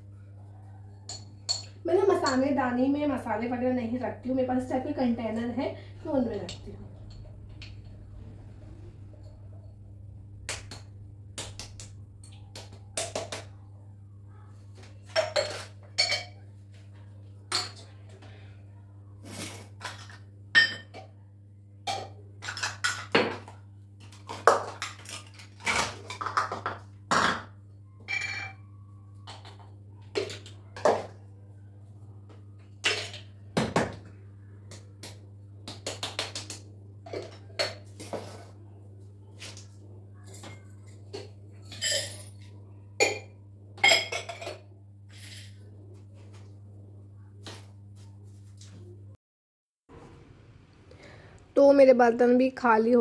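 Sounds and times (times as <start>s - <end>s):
steel dishes clinking: 41.7s - 43.2s.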